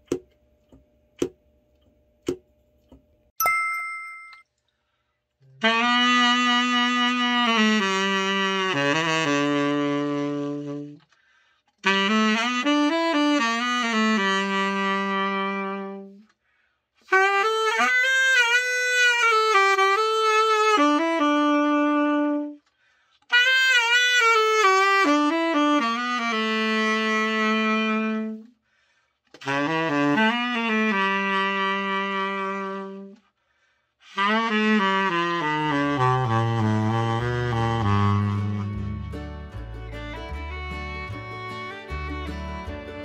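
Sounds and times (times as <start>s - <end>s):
tenor saxophone melody: 5.5s - 11.2s, 11.8s - 16.4s, 17.0s - 22.7s, 23.3s - 28.6s, 29.3s - 33.3s, 34.0s - 43.0s.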